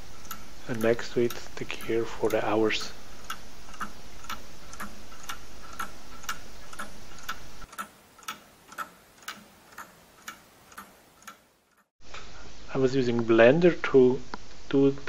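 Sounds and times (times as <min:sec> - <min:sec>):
mechanical clock ticking: 0:00.0 - 0:11.9
steady background noise: 0:00.0 - 0:15.0.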